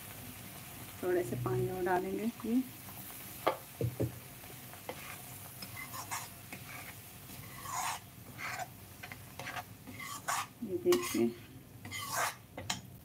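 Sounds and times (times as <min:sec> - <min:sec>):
light sizzling: 0:00.0 - 0:13.0
spoon clinking and scraping pan: 0:04.9 - 0:12.8.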